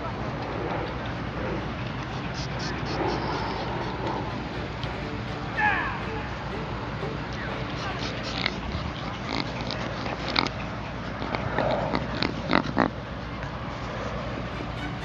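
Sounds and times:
dog sniffing and snuffling: 0.4s - 4.4s, 7.7s - 13.0s.

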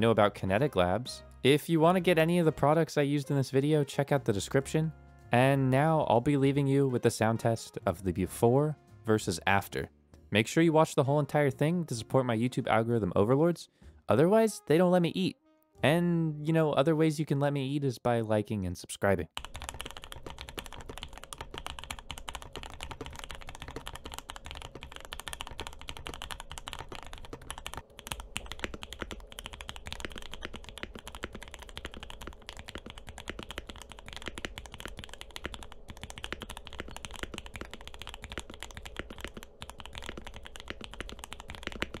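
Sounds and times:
mechanical keyboard typing: 19.4s - 42.0s.

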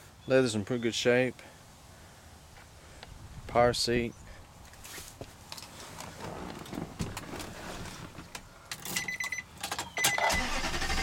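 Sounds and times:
rustling and handling noise: 4.6s - 9.9s.

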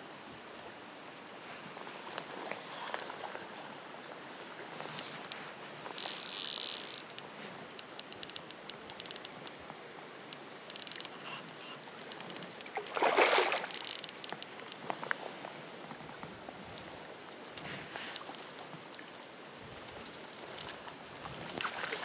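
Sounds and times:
faint outdoor hiss: 0.0s - 22.0s
fishing line rushing: 5.9s - 7.2s, 12.2s - 14.2s
fly rod handling clicks: 6.0s - 7.2s, 7.8s - 9.6s, 10.3s - 11.2s, 13.6s - 14.8s.

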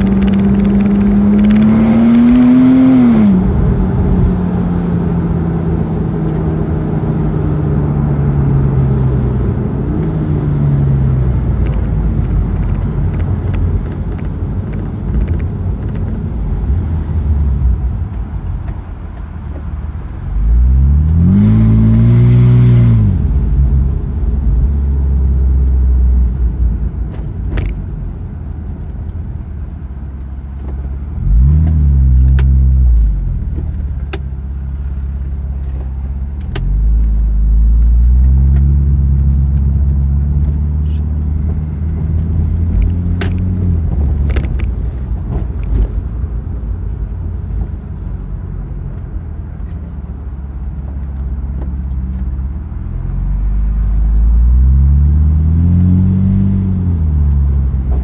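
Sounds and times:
car engine revving from inside: 0.0s - 13.4s, 20.4s - 26.4s, 31.1s - 33.2s, 51.6s - 58.0s
light clicks and rattles: 11.5s - 16.4s.

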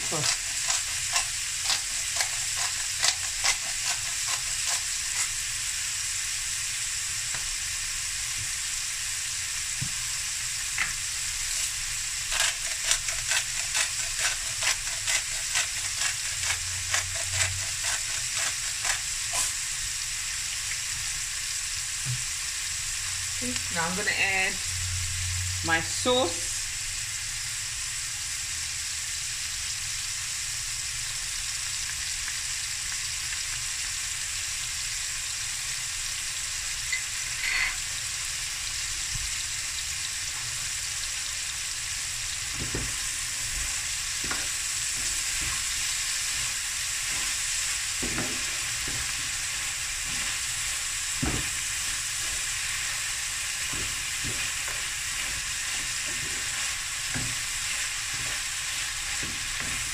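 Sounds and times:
wooden spatula scraping a pan: 0.0s - 5.4s, 11.5s - 19.6s, 42.5s - 59.9s
sausage sizzling in a pan: 0.0s - 59.9s.

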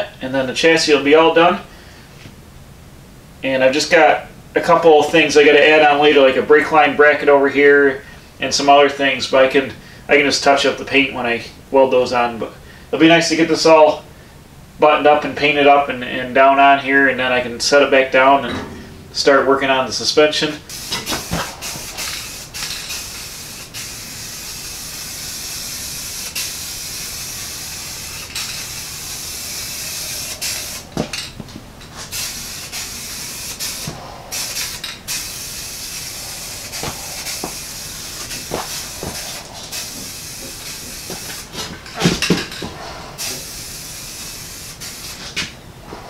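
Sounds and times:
spray can hissing: 20.7s - 31.2s, 32.0s - 41.5s, 43.2s - 45.2s.

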